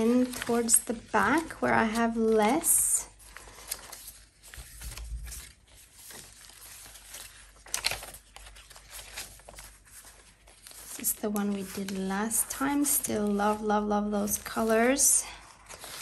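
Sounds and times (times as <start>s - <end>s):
paper pages rustling and flicking: 0.0s - 16.0s.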